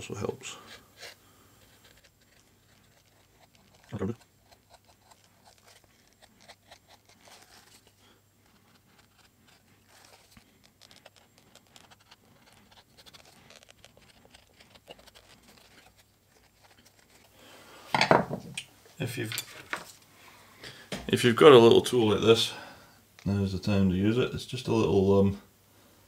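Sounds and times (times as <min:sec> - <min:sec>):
knife shaving leather: 0:00.0 - 0:17.4
hard object knocking on workbench: 0:18.0 - 0:18.5.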